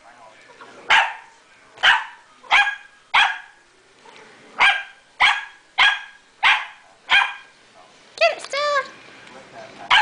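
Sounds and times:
puppy barking: 0.9s - 3.6s, 4.6s - 7.5s.

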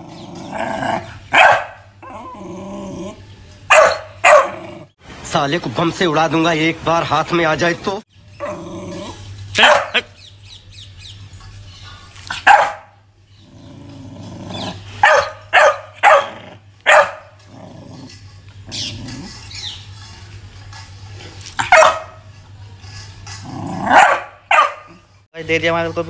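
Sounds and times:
dog growling: 0.0s - 1.3s, 2.0s - 3.4s, 4.4s - 5.0s, 8.4s - 9.9s, 13.3s - 15.0s, 17.4s - 19.7s, 23.3s - 24.2s
dog barking sharply: 1.4s - 1.8s, 3.7s - 4.6s, 9.6s - 10.1s, 12.4s - 13.0s, 15.0s - 16.3s, 16.9s - 17.2s, 21.6s - 22.2s, 23.9s - 24.9s.

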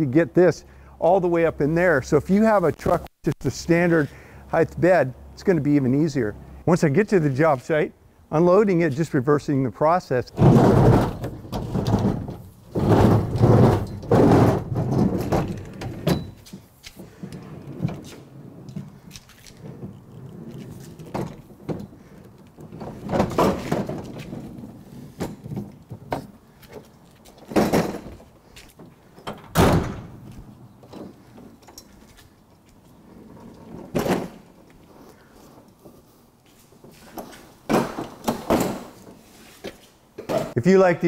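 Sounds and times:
metal scraping and rattling: 10.3s - 35.7s.

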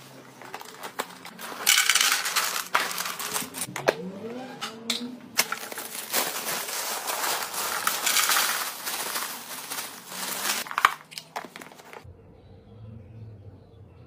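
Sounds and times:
plastic bag crinkling: 0.0s - 3.7s, 5.4s - 12.0s
cornflakes pouring: 0.5s - 3.7s, 5.4s - 12.0s.

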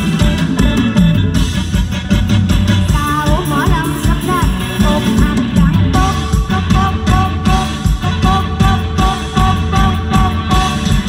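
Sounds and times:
live band music over pa: 0.0s - 11.0s
steady drum beat: 0.0s - 11.0s.

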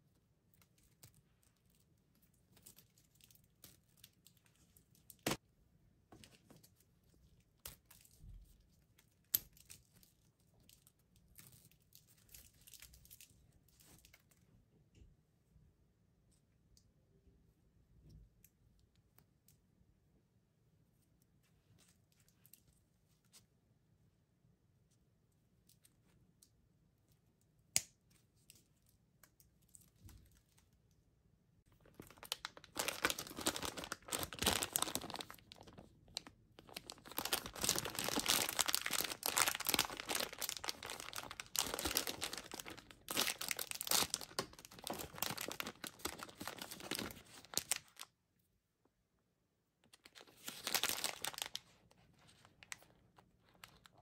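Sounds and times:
plastic bag crinkling and tearing: 31.7s - 48.1s, 50.0s - 54.0s.

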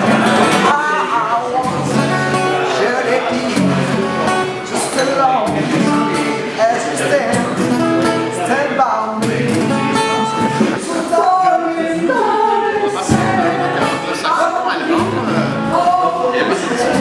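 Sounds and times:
acoustic guitar: 0.0s - 17.0s
person singing: 4.6s - 17.0s.

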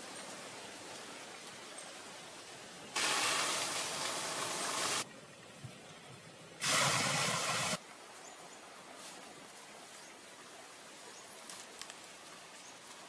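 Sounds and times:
bursts of steady hissing: 2.9s - 5.0s, 6.6s - 7.8s.

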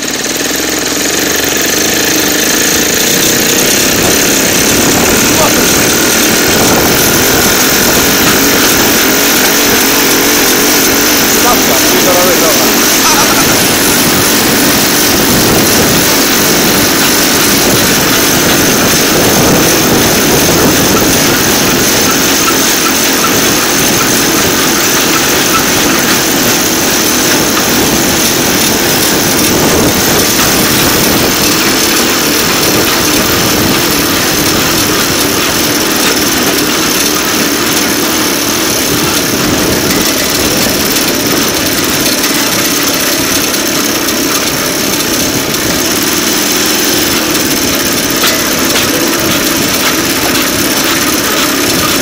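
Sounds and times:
rail vehicle engine running: 0.0s - 52.0s.

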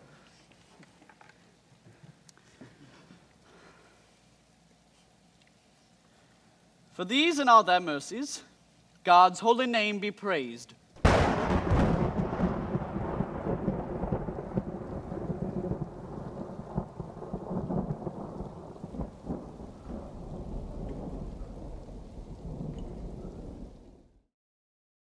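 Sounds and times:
steady rain: 0.0s - 10.0s, 10.7s - 24.2s
rolling thunder rumble: 11.0s - 24.2s.

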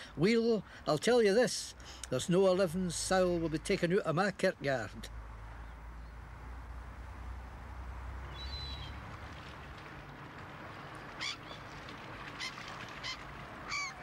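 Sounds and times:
steady outdoor hiss: 0.0s - 14.0s
birds calling: 8.2s - 9.1s, 10.8s - 14.0s.

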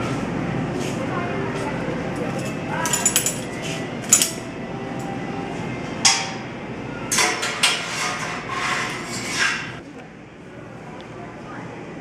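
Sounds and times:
metal scraping: 7.1s - 9.8s.

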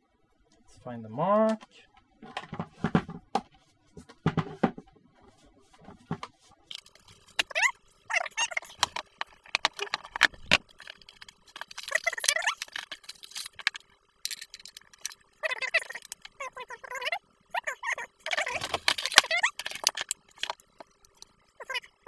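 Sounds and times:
faint steady hum: 0.0s - 22.0s
hands handling plastic speaker: 8.5s - 15.2s, 18.3s - 20.9s.

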